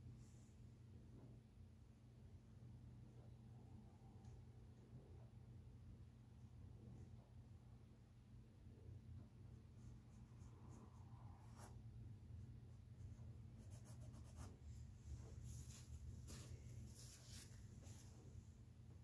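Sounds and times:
paintbrush scratching on canvas: 0:13.6 - 0:18.2.

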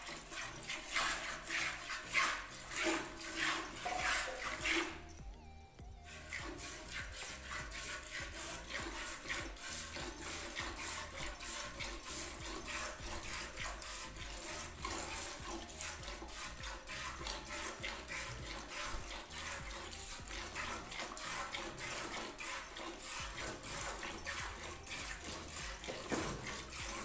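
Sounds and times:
milk squirting into steel pail: 0:06.4 - 0:27.0.

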